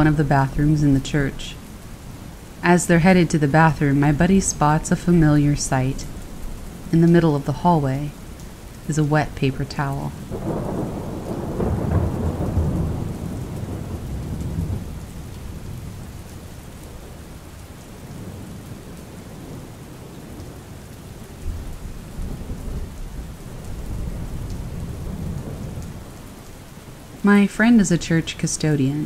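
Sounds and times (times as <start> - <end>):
steady rain: 0.0 - 29.0
rolling thunder: 10.2 - 16.3, 21.4 - 26.4.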